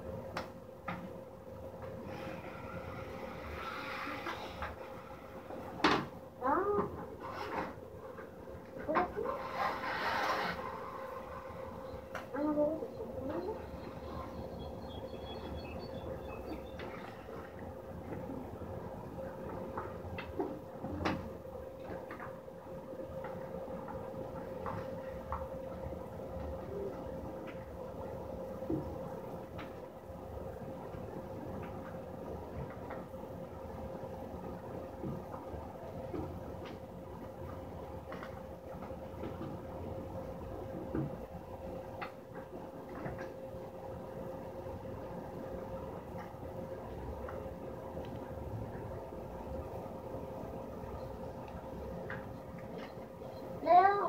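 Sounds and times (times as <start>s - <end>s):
steady tonal hum: 0.0s - 54.0s.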